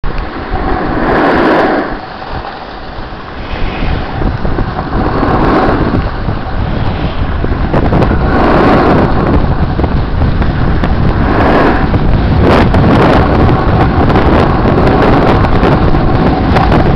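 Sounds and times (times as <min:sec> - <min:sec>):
wind rushing over microphone: 0:00.0 - 0:16.9
edges scraping on snow: 0:00.5 - 0:07.3.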